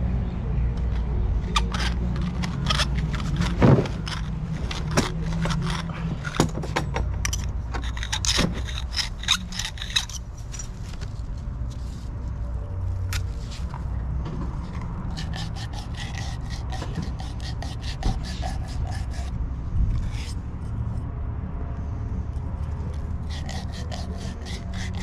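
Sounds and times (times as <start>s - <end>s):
metal fittings and tools clinking: 1.4s - 11.0s.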